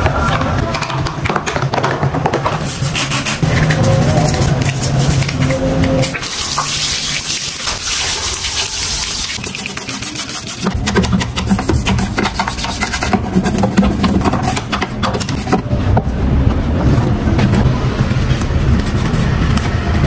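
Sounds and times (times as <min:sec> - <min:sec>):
toothbrush scrubbing wet plastic: 0:02.6 - 0:15.6.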